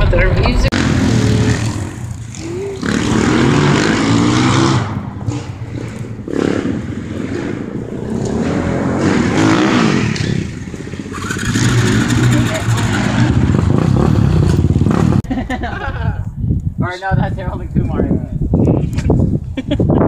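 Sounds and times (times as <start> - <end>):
off-road vehicle engine revving: 0.0 - 15.3.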